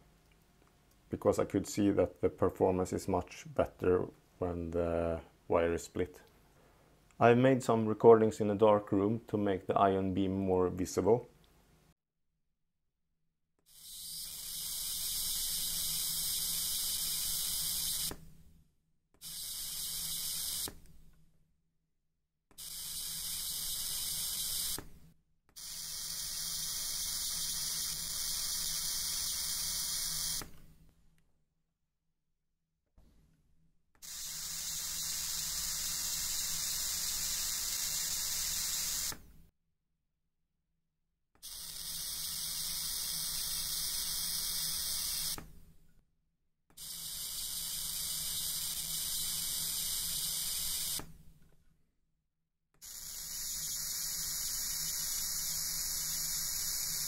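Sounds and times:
high-voltage corona discharge hissing: 34.1s - 39.1s.

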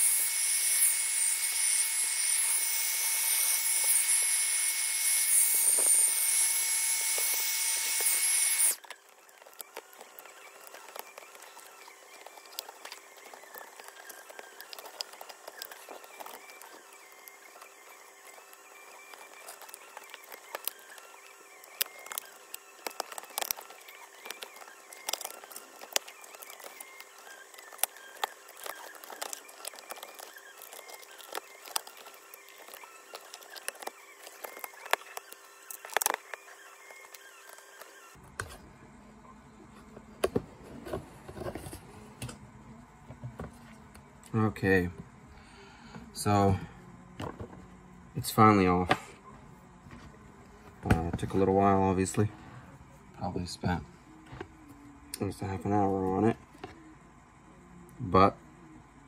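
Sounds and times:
hot-air tool whining: 0.0s - 56.9s
faint clicks and scrapes: 8.8s - 38.7s.

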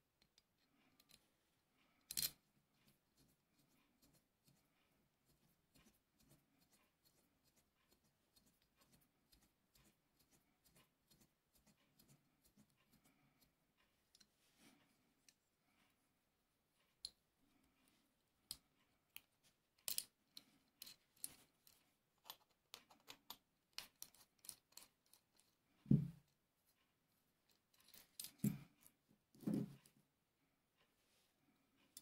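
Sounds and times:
small metal clicks and taps: 18.5s - 25.5s.

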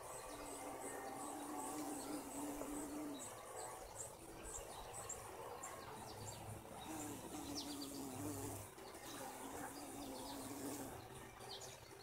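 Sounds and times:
birds chirping: 0.0s - 12.0s
bumblebee buzzing: 0.4s - 3.3s, 6.8s - 11.1s.

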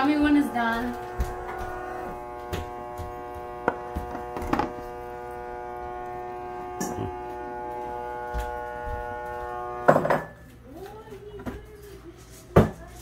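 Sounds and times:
electric motor hum: 0.0s - 10.2s.

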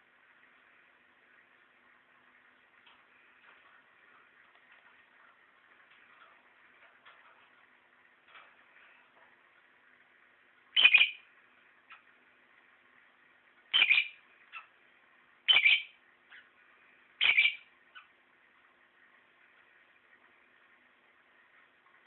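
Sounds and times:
lovebird calling: 10.7s - 11.3s, 13.7s - 14.8s, 15.4s - 16.6s, 17.2s - 18.2s
soft bird chirps: 10.7s - 12.1s, 13.7s - 14.8s, 15.4s - 16.6s, 17.2s - 18.2s.

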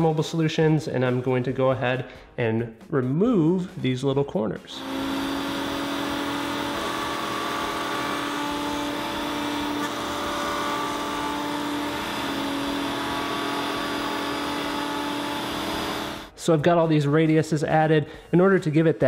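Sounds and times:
wood router whining: 4.8s - 16.4s.

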